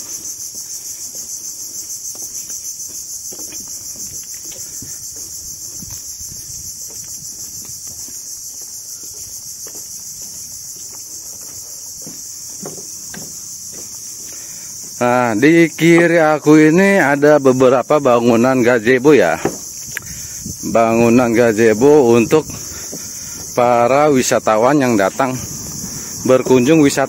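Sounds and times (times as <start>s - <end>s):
pulsing insect chorus: 0.0s - 27.0s.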